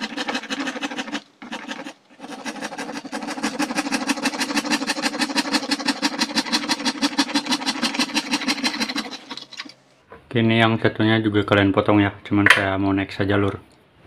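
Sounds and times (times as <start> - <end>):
scroll saw cutting plastic: 0.0 - 9.8.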